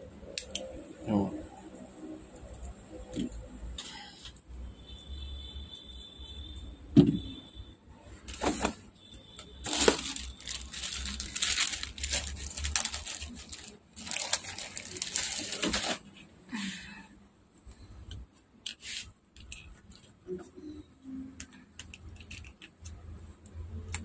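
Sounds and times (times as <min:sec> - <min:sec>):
plastic bag rustling: 0:09.6 - 0:16.2.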